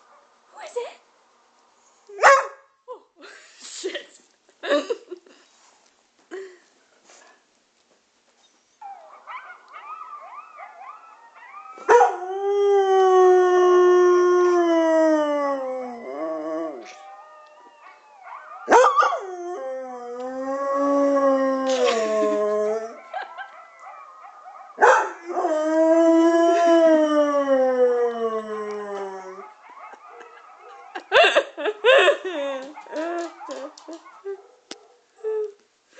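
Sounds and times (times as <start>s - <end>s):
dog howling: 8.8s - 31.2s.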